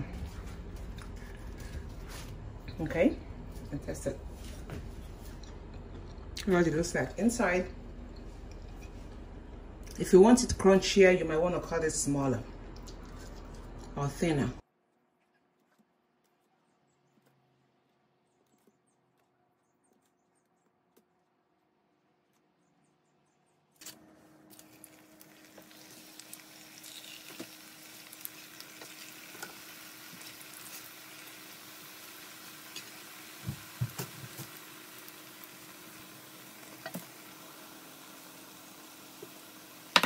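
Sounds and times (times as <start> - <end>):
dough sizzling in hot oil: 24.5 - 40.0
knocks of stirring in pan: 32.7 - 34.8.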